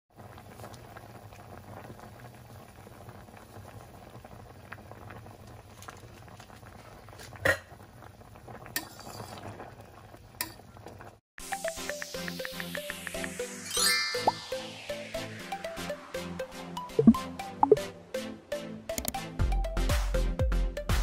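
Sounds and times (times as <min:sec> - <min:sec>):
broth boiling and bubbling: 0:00.1 - 0:11.2.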